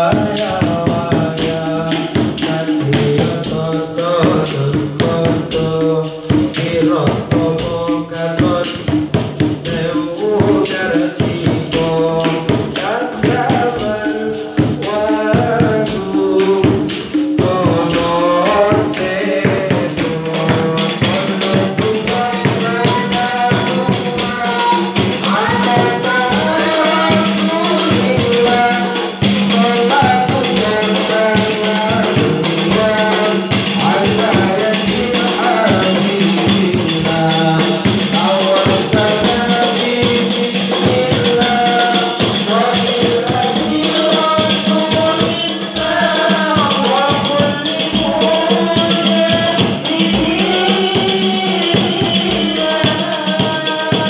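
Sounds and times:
frame drums beating: 0.0 - 54.0
woman singing into a microphone: 22.0 - 29.3, 45.2 - 54.0.

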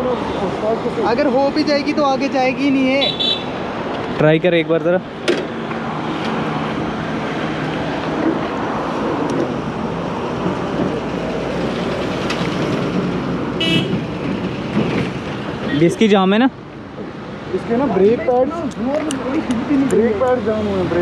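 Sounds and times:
motor vehicle noise: 0.0 - 21.0
high-pitched horn toot: 13.6 - 14.0.

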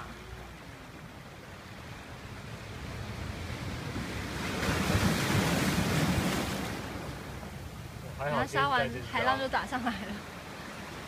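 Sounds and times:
wave washing on pebbles: 2.1 - 7.7.

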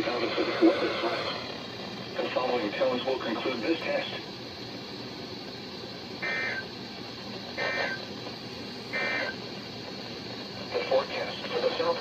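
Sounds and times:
screechy digital data bursts: 6.2 - 6.7, 7.6 - 8.0, 8.9 - 9.4.

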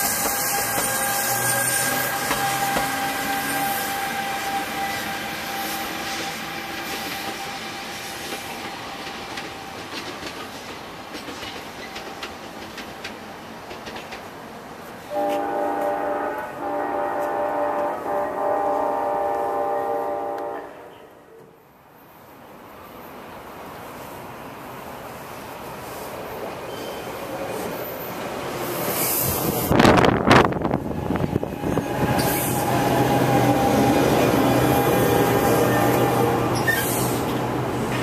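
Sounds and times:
electric train pulling away: 0.0 - 10.0, 26.5 - 38.0
train horn chord: 0.4 - 6.0, 15.1 - 21.2.

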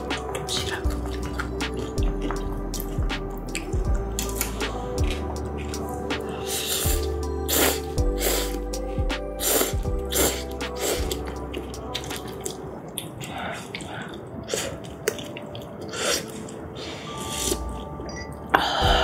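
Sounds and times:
slurping noodles: 5.6 - 8.7, 9.4 - 17.9.

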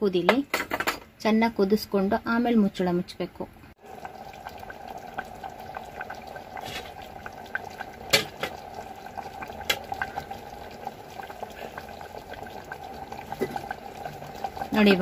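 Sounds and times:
water boiling with pops: 3.8 - 15.0.

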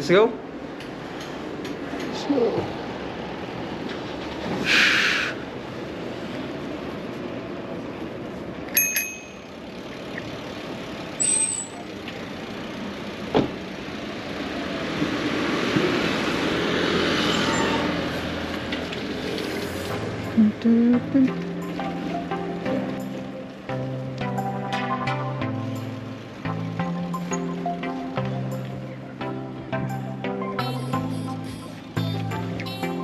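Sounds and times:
wind and road noise: 0.0 - 33.0
bicycle rattling: 8.7 - 13.2
metallic ting: 8.8 - 9.5.

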